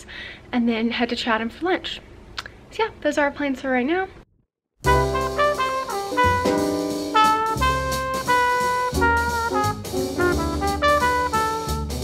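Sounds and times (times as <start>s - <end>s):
instrumental jazz music: 4.8s - 12.0s.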